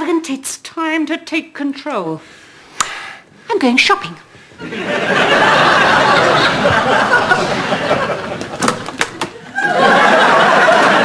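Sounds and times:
studio audience laughing: 4.6 - 11.0.

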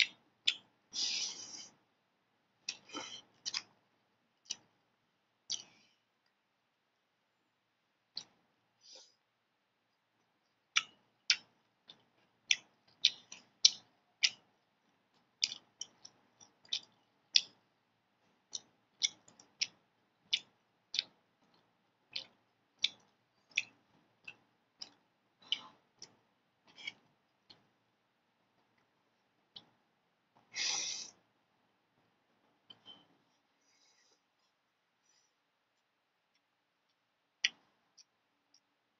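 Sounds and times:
wet chewing and lip-smacking: 0.0 - 1.8, 2.6 - 4.8, 5.4 - 6.4, 9.9 - 27.8, 35.8 - 38.8.

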